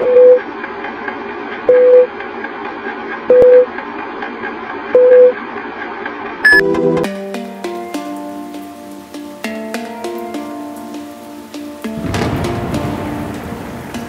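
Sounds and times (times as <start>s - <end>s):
short beeps: 3.3s - 3.7s, 5.0s - 5.4s, 6.4s - 6.7s.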